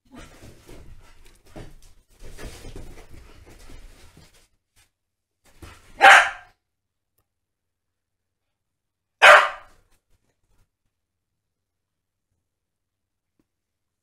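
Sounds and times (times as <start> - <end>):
dogs scuffling: 0.1 - 4.9
dog barking: 6.0 - 6.6, 9.2 - 9.8.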